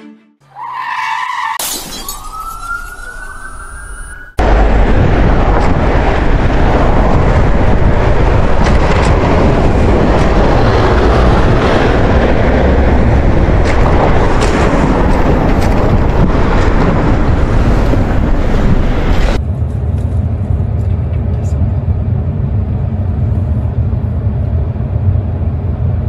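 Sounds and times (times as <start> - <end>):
road and passing car noise: 2.3 - 26.0
wind buffeting microphone: 4.4 - 20.4.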